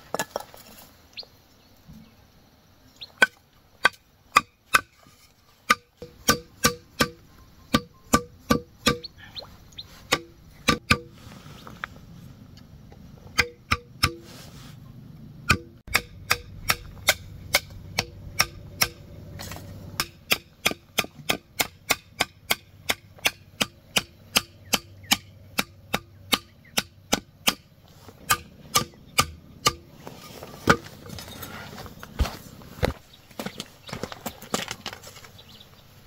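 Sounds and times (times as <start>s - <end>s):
hand tool striking hard material: 5.6s - 9.0s, 10.1s - 11.2s, 13.4s - 14.3s, 15.5s - 31.2s.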